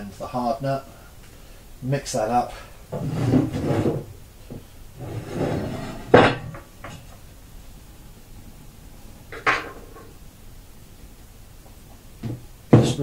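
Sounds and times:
stick scraping on ceramic tile: 5.0s - 6.3s.

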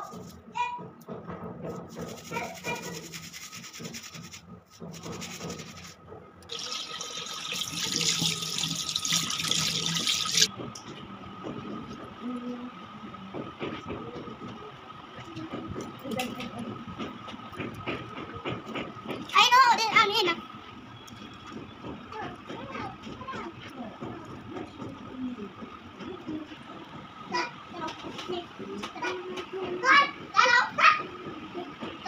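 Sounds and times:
tap water running into sink: 6.5s - 10.5s.

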